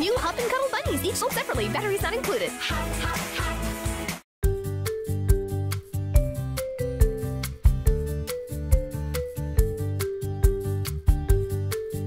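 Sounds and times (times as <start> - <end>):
upbeat instrumental music: 0.0 - 12.0.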